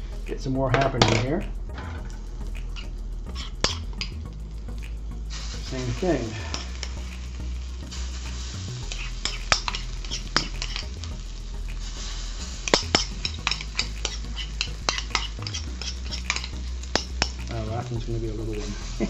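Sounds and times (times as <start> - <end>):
hot oil sizzling: 0.0 - 19.0
spoon scraping a bowl: 3.3 - 4.1, 8.9 - 10.8, 12.7 - 17.3.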